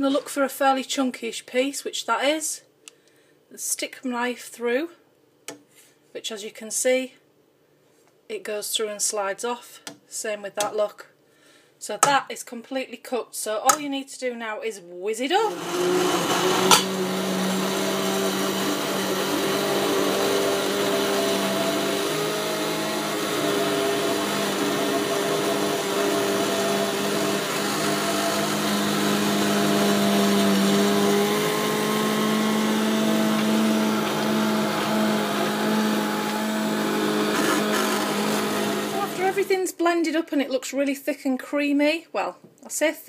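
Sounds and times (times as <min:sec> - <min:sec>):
stick blender motor humming: 0:15.5 - 0:39.6.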